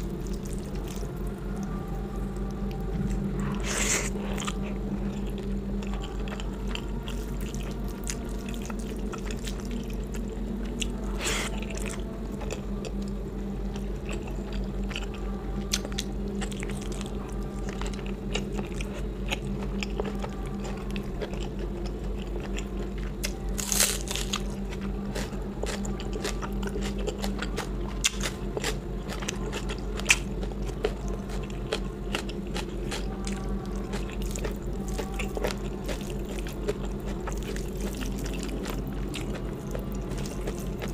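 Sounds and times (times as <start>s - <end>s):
steady low hum: 0.0s - 40.9s
person chewing and biting food: 17.9s - 40.9s.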